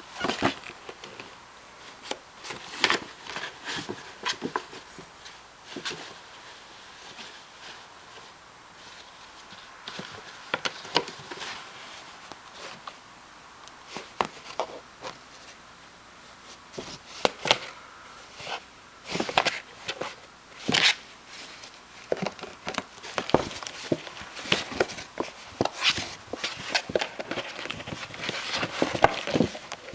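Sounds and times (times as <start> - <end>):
claws scratching cardboard: 18.4 - 29.9.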